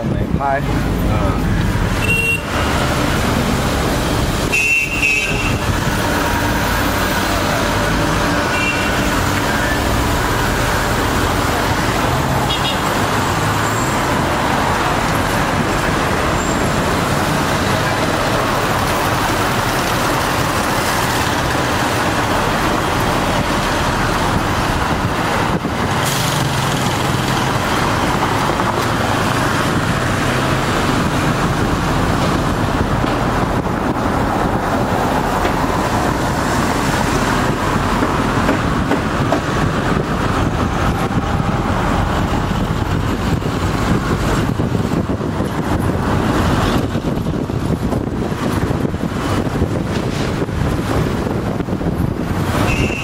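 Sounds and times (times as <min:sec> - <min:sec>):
loud city road traffic: 0:00.0 - 0:53.0
short horn toots: 0:52.7 - 0:53.0.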